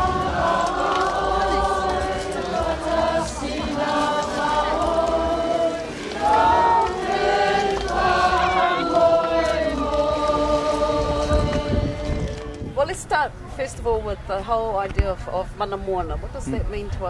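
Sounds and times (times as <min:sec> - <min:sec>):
choir singing: 0:00.0 - 0:12.7.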